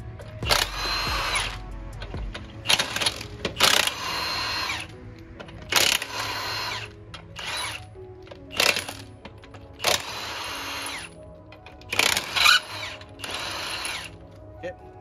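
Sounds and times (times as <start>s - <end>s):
impact wrench bursts: 0.4s - 4.9s, 5.6s - 7.8s, 8.5s - 9.1s, 9.8s - 11.2s, 11.9s - 14.2s.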